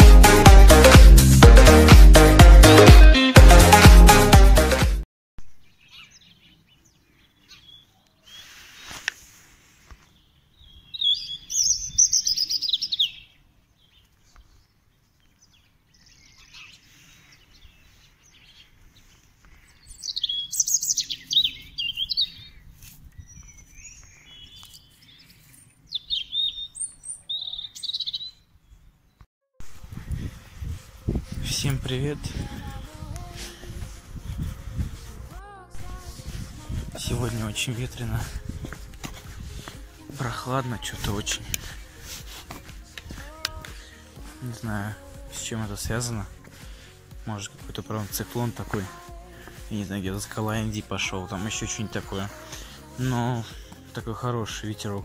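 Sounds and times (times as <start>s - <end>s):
robin singing: 5.6s - 9.1s, 10.0s - 29.2s, 35.8s - 55.0s.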